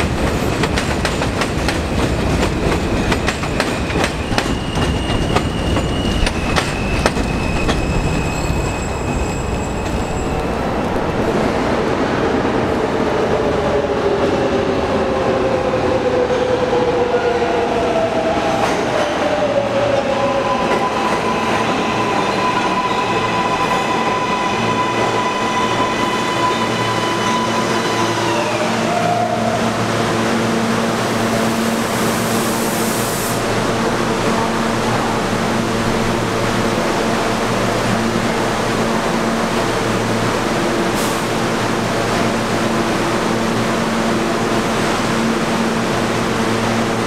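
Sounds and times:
train humming at platform: 0:00.0 - 0:47.0
hiss of air: 0:31.6 - 0:33.5, 0:41.0 - 0:41.4.

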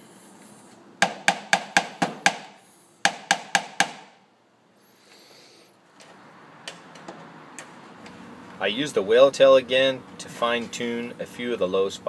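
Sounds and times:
tool tapping on sheet metal: 0:01.0 - 0:04.2.

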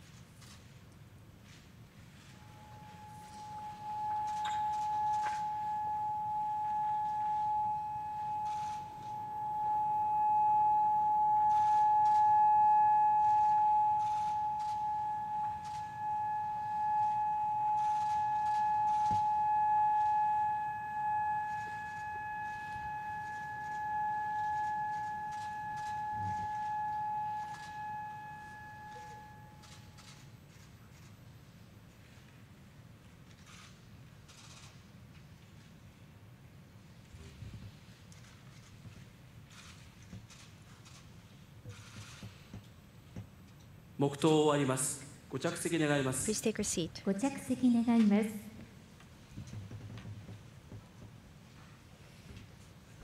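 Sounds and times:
siren steady pitch: 0:02.2 - 0:30.1.

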